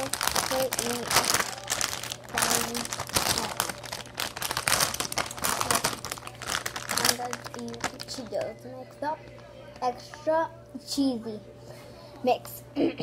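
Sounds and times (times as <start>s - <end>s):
plastic snack bag crinkling: 0.0s - 10.3s.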